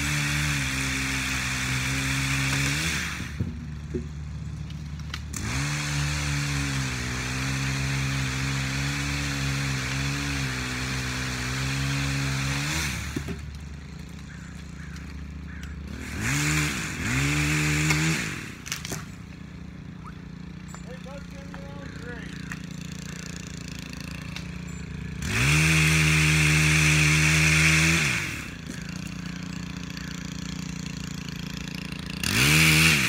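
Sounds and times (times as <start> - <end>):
engine running: 0.0 - 33.0.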